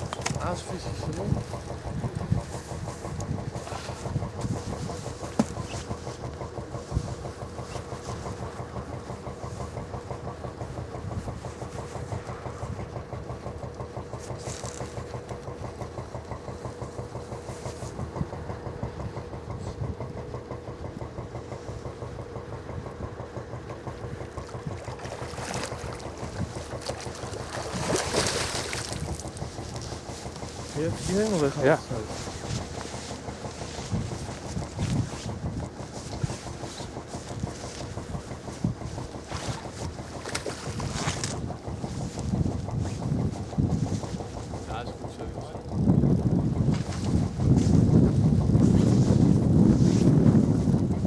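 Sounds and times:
engine idling: 0.0s - 51.0s
fish splashing at surface: 24.8s - 29.3s.

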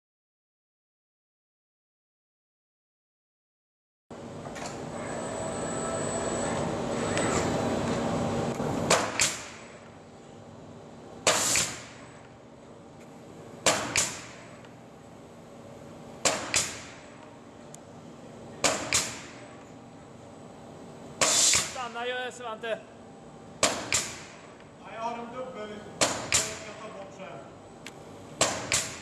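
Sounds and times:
pneumatic nailer shots: 8.9s - 9.8s, 11.2s - 12.2s, 13.6s - 14.6s, 16.2s - 17.2s, 18.6s - 19.5s, 21.2s - 21.8s, 23.6s - 24.6s, 26.0s - 26.8s, 28.4s - 29.0s.

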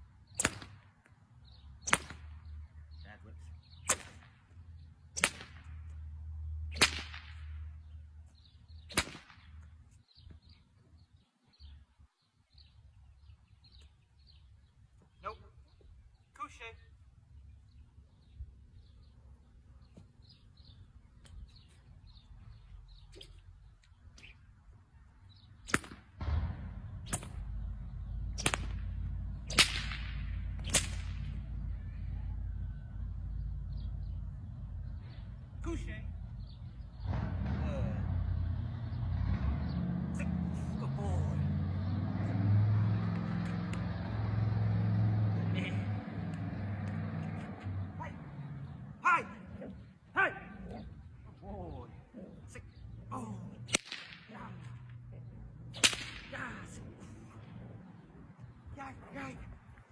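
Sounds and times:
whip cracking: 0.3s - 0.9s, 1.8s - 2.4s, 3.8s - 4.4s, 5.1s - 5.9s, 6.7s - 7.7s, 8.8s - 9.7s, 25.6s - 31.7s, 43.0s - 44.0s, 53.6s - 55.0s, 55.7s - 56.8s
faint bird chirps: 9.9s - 25.6s
low rumble: 26.2s - 39.9s.

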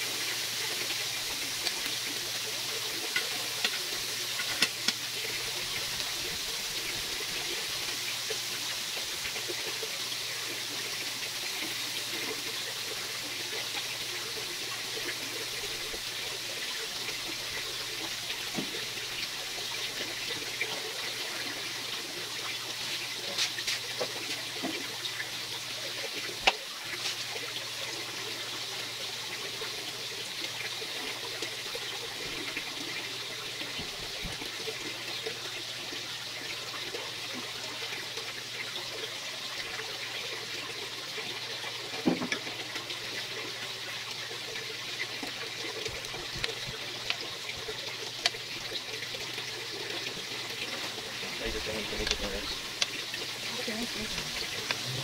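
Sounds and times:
chicken sizzling on grill: 0.0s - 55.0s.

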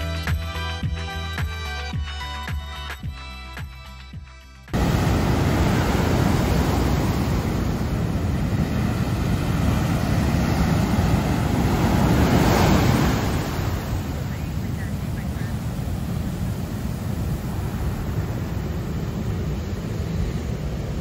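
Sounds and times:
background music: 0.0s - 4.8s
waves breaking on a beach: 4.8s - 21.0s.

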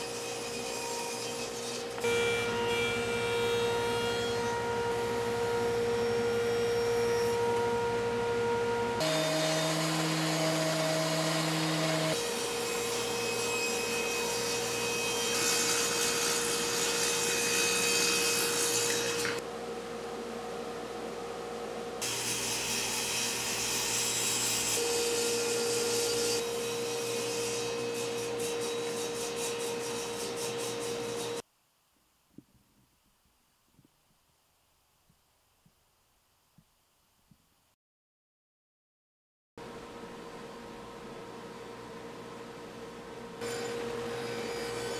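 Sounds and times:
woodshop power tools running: 0.0s - 19.5s, 43.4s - 44.9s
dust extraction hum: 0.0s - 29.0s.

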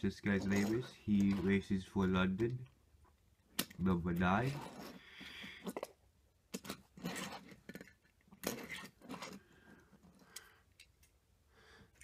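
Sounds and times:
toy cars clicking and scraping on wood: 3.5s - 11.1s.

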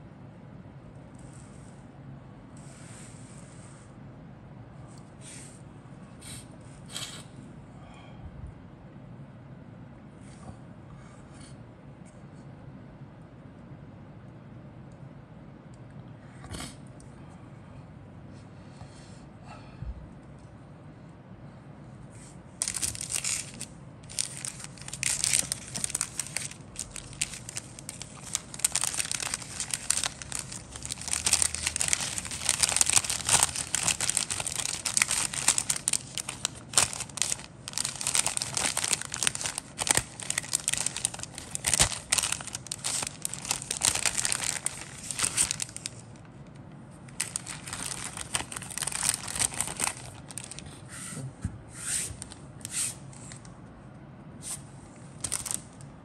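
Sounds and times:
plastic bag crinkling: 22.6s - 46.3s, 47.1s - 50.6s, 55.2s - 55.8s.

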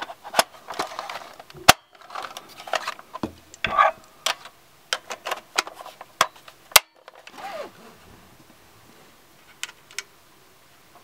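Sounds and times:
sliding plastic scrape: 0.0s - 3.0s
plastic parts clicking: 0.0s - 7.4s.

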